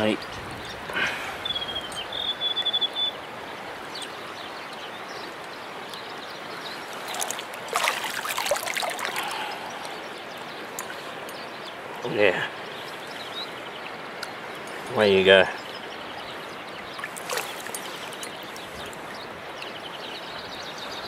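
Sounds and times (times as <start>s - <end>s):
stream water running: 0.0s - 21.0s
splashing in water: 6.8s - 9.9s, 17.0s - 19.0s.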